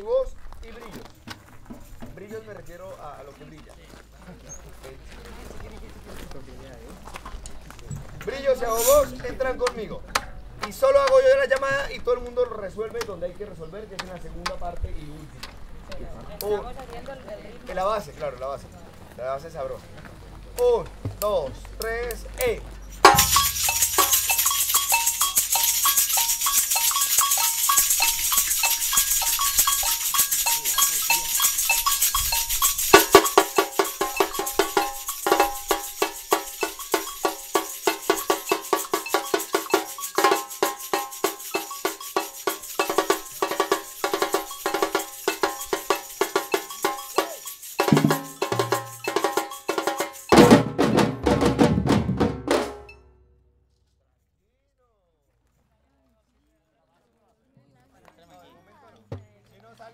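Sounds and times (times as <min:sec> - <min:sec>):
high shaker rattle: 0:08.6 - 0:09.2, 0:22.8 - 0:50.6
drums playing steady strokes: 0:22.9 - 0:53.0
two-tone agogo bells: 0:23.0 - 0:50.8.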